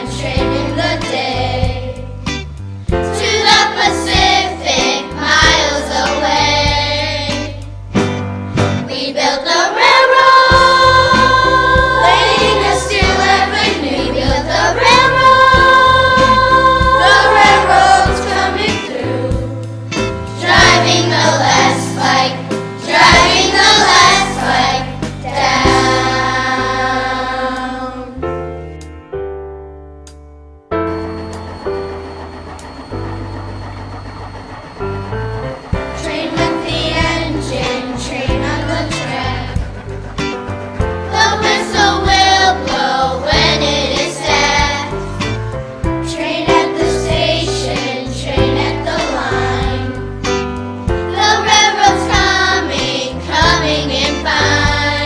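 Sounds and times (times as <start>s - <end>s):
instrumental backing music: 0.0s - 55.0s
children singing: 3.1s - 7.6s, 8.9s - 19.6s, 20.4s - 28.2s, 34.8s - 45.3s, 46.1s - 50.1s, 51.1s - 55.0s.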